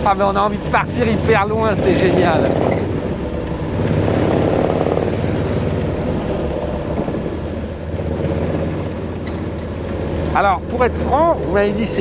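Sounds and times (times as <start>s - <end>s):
v-twin engine running: 0.0s - 12.0s.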